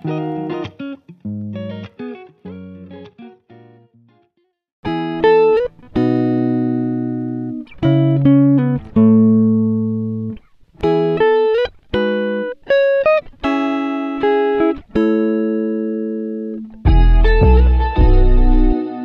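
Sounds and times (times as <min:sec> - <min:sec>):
guitar plucking slow melody: 0:00.0 - 0:19.0.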